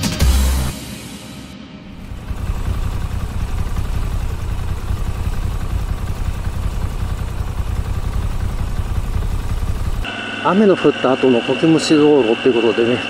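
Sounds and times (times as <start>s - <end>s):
motorcycle engine running: 1.9s - 10.1s.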